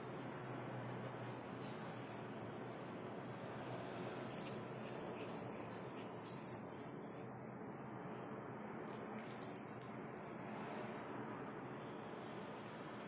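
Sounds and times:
cat chewing grass clicks: 3.9 - 8.3, 8.9 - 10.4.

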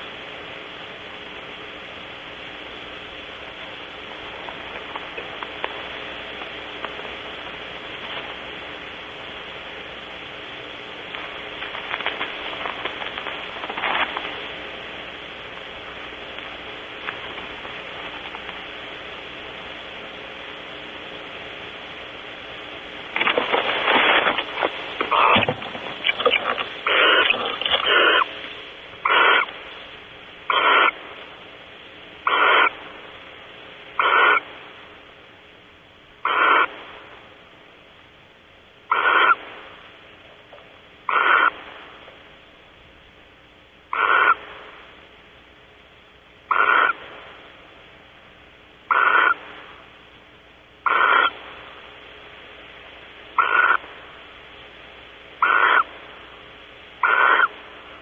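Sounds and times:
background hiss: 0.0 - 58.0
barn owl rasping calls: 25.0 - 28.4, 29.0 - 29.7, 30.4 - 31.0, 32.2 - 32.9, 33.9 - 34.6, 36.2 - 36.8, 38.8 - 39.5, 41.0 - 41.8, 43.9 - 44.7, 46.4 - 47.2, 48.8 - 49.8, 50.8 - 51.4, 53.3 - 53.9, 55.4 - 56.0, 57.0 - 57.7.

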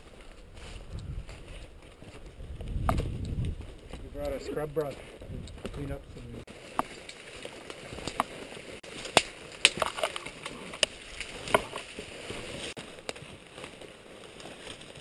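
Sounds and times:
branches brushing and scraping: 0.0 - 15.0
twigs snapping and cracking: 6.6 - 15.0.

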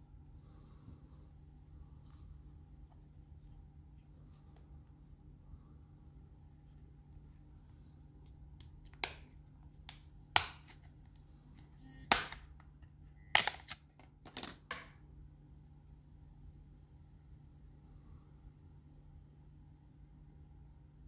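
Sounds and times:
plastic clips snapping loose: 13.4 - 14.6.

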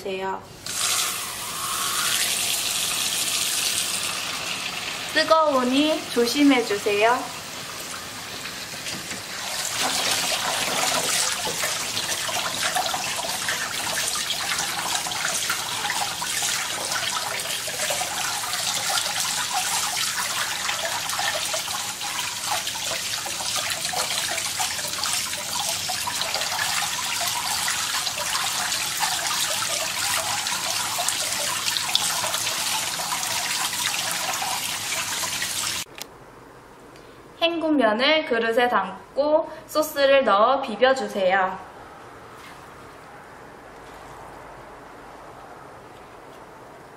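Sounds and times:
faucet water splashing on noodles: 7.4 - 35.9.

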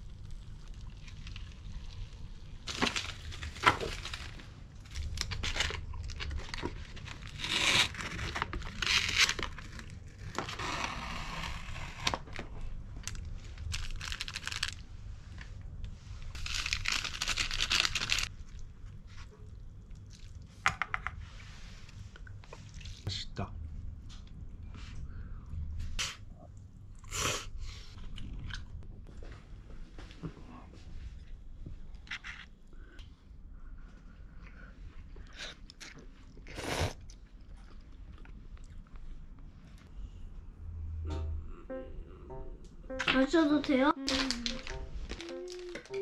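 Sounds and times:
plastic and foil crinkling and tearing: 0.1 - 14.8, 16.3 - 18.3, 44.0 - 46.0.

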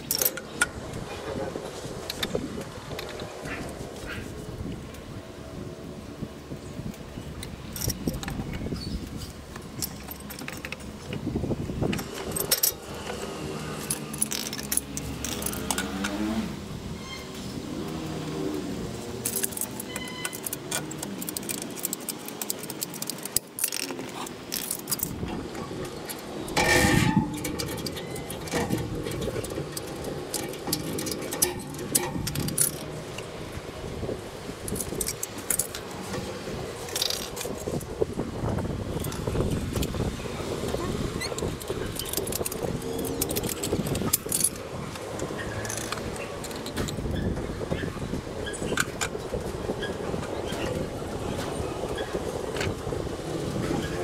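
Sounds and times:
metal tools clinking on tiled floor: 9.8 - 11.0, 11.9 - 16.1, 19.2 - 25.2, 26.1 - 33.0, 41.2 - 44.6.

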